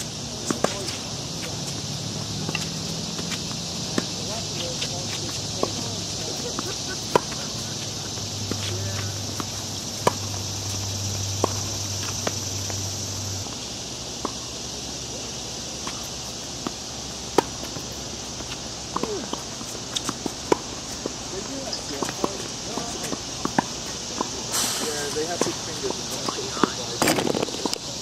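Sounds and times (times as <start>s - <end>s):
shoe squeaks: 0.0s - 12.8s, 17.5s - 27.7s
racket hitting ball: 0.0s - 12.9s, 15.8s - 21.2s
high insect buzz: 0.0s - 28.0s
ball bouncing: 0.4s - 12.9s.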